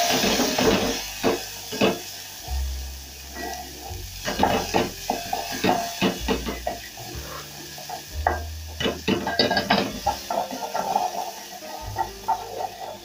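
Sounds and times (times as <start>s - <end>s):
onions sizzling: 0.0s - 13.0s
wooden spoon scraping metal pan: 4.3s - 13.0s.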